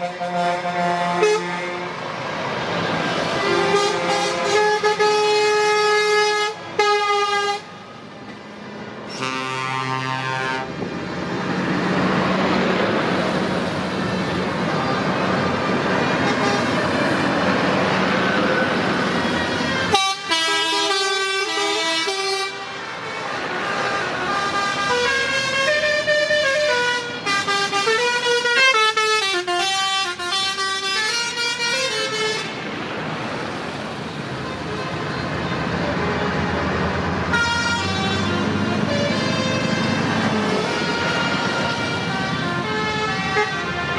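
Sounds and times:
truck air horns blasting: 0.0s - 2.0s, 3.2s - 7.8s, 9.1s - 10.8s, 16.1s - 17.3s, 19.6s - 32.6s, 35.8s - 43.9s
truck diesel engine rumble: 0.0s - 43.9s.

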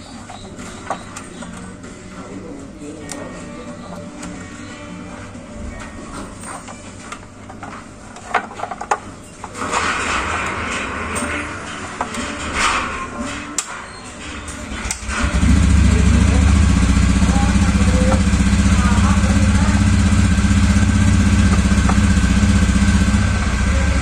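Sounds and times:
small engine idling: 14.7s - 24.0s.

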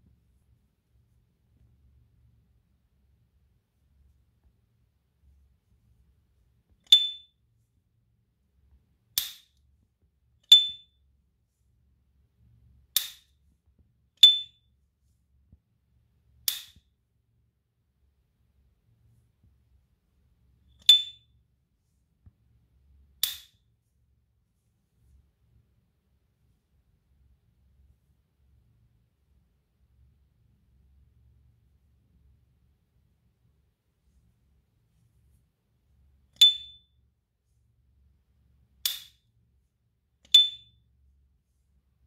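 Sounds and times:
high metallic ring: 6.9s - 7.4s, 36.4s - 37.0s, 40.3s - 40.8s.

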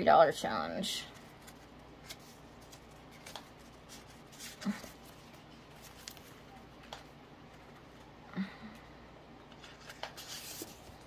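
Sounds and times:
paper cards rustling: 1.1s - 8.1s, 9.5s - 11.0s.

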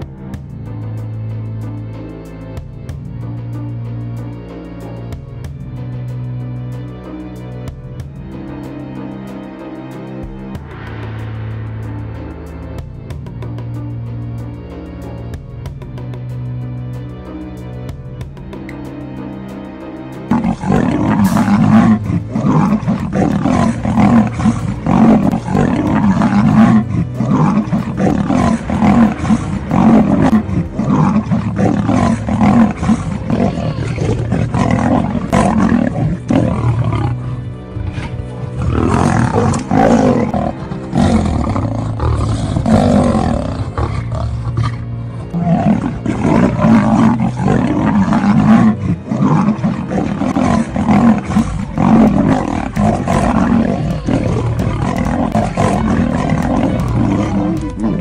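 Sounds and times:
background music: 0.0s - 58.0s
big cats roaring: 20.3s - 58.0s.

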